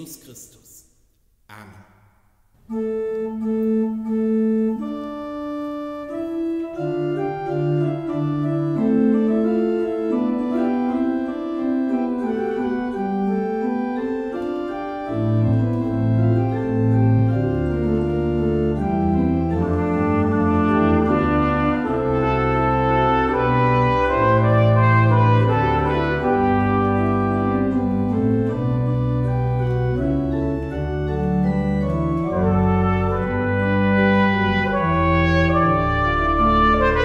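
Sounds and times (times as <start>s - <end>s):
church organ chords: 2.6s - 37.0s
deep organ pedal bass: 2.7s - 37.0s.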